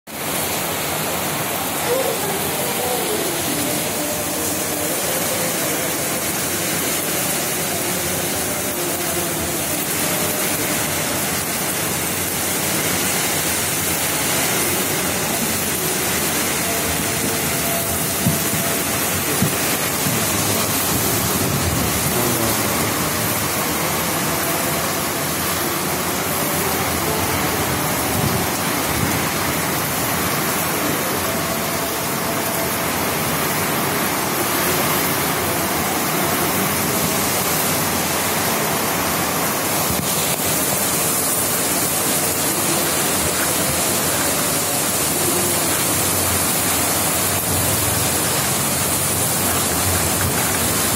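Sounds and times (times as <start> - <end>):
heavy rain on roofs and pavement: 0.1 - 50.9.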